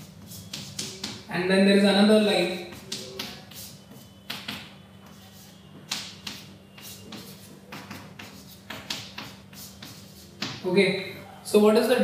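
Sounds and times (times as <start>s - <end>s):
chalk writing on chalkboard: 0.0s - 1.3s, 2.5s - 10.7s.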